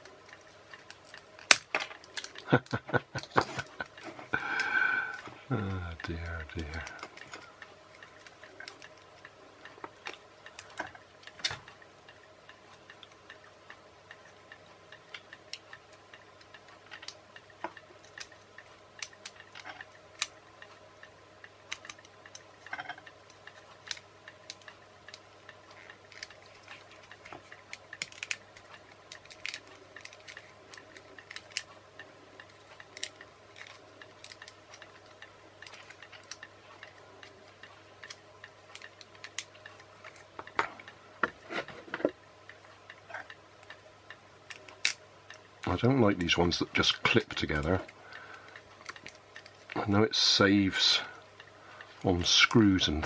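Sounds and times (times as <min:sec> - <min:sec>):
plastic parts clicking and tapping: 0:21.7 - 0:31.8.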